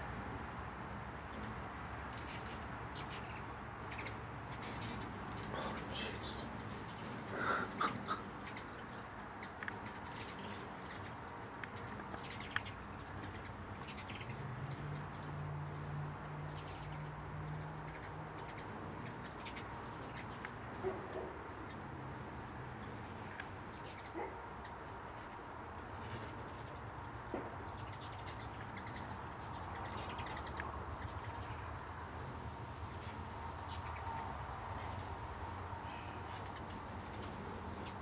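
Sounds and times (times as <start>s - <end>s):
hummingbird chirps: 2.1s - 22.2s, 22.8s - 25.3s, 27.5s - 31.8s, 32.7s - 38.0s.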